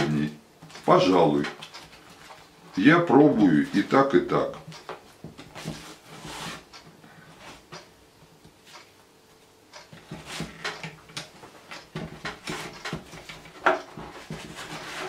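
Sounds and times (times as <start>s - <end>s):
roller frame scraping and clicking: 10.0s - 15.0s.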